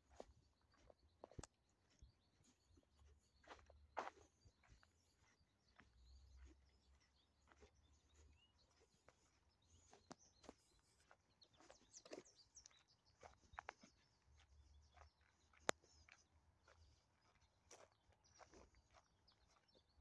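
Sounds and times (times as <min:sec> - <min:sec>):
footsteps on gravel: 0:00.0 - 0:19.8
birds chirping: 0:00.0 - 0:20.0.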